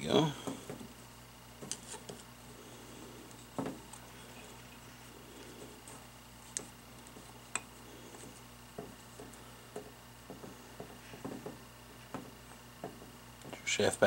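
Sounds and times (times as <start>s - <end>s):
soft taps and knocks: 8.7s - 13.6s.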